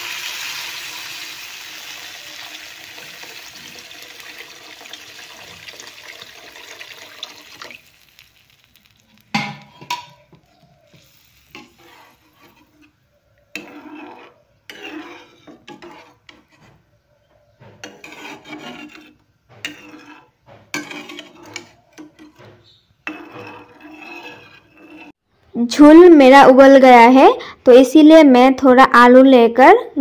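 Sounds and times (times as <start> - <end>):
spatula scraping a pan: 2.1 - 4.0, 4.8 - 25.2.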